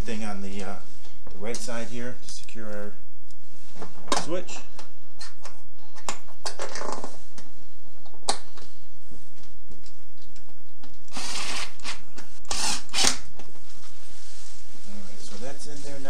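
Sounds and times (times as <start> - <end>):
screws grinding in: 11.1 - 13.2.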